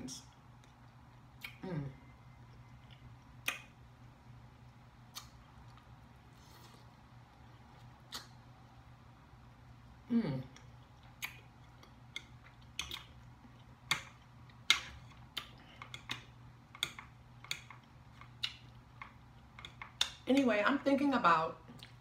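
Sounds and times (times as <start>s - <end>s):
person humming mmm: 1.4s - 2.1s
chewing: 2.4s - 3.7s, 4.6s - 8.4s, 10.5s - 20.2s.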